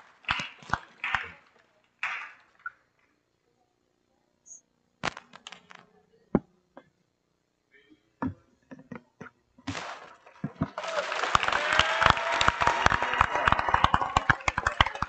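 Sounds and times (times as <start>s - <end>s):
crowd applauding and cheering: 0.0s - 2.5s, 10.4s - 15.0s.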